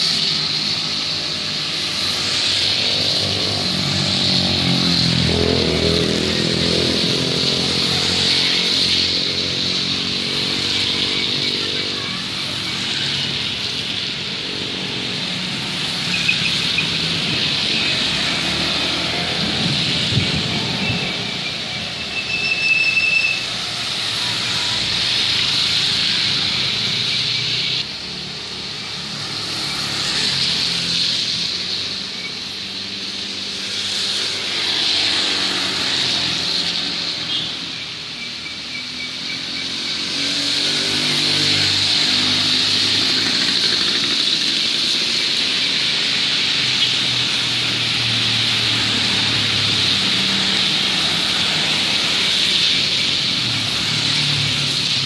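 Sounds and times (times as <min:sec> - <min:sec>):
vehicles passing on wet road: 0:00.0 - 0:55.0
brief high squeal: 0:22.0 - 0:23.5
rain falling on road: 0:40.8 - 0:55.0.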